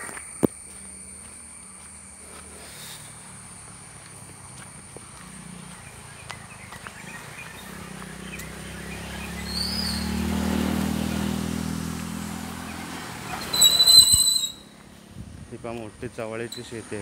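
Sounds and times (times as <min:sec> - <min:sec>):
vehicle engine approaching: 0:00.6 - 0:17.0
bird chirping: 0:05.0 - 0:10.6.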